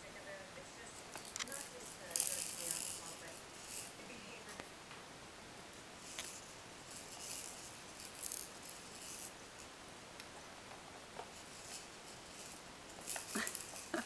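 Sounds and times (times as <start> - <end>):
beads rattling in plastic domes: 0.2 - 4.6, 6.0 - 9.4, 11.3 - 14.0.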